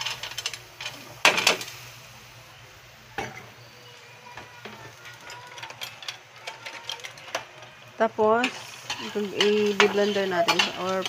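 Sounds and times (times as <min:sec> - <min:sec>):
peanuts clattering into pan: 0:00.0 - 0:01.8, 0:04.4 - 0:11.0.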